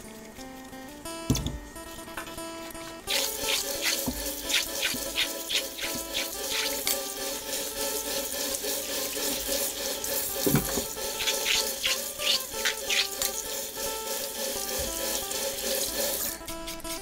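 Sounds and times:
tap water splashing into sink: 3.1 - 13.5, 14.1 - 16.3
fruit rubbed by hand: 3.1 - 17.0.

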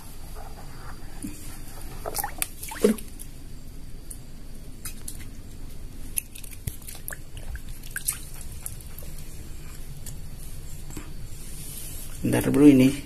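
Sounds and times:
water splashes and drips: 2.0 - 3.2, 6.0 - 9.4.

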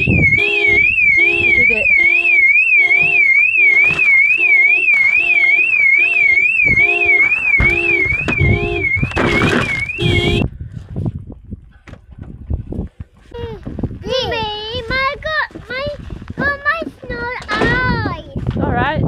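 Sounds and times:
car alarm warbling siren: 0.0 - 10.4
pulsing low beeping tone: 0.0 - 10.4.

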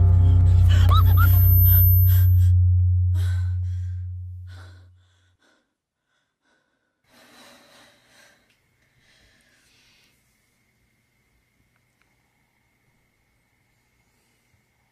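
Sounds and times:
low musical drone: 0.0 - 4.8
long sigh: 0.0 - 5.6.

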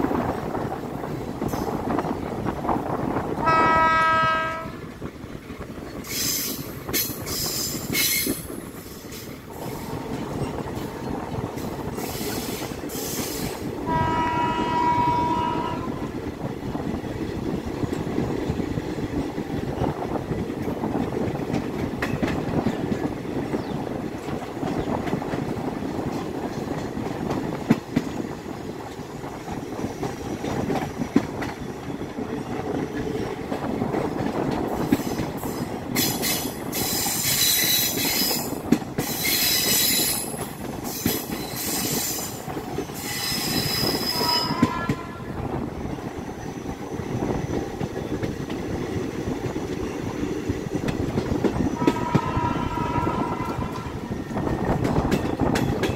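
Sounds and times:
train rumbling at speed: 0.0 - 55.9
train wheels squealing: 6.0 - 11.3, 11.9 - 13.6, 34.8 - 44.6.

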